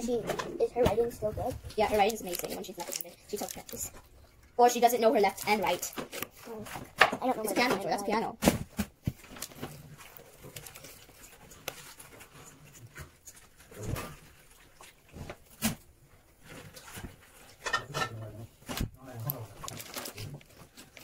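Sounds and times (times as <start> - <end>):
faint slime handling noise: 0.1 - 17.7, 18.3 - 21.0.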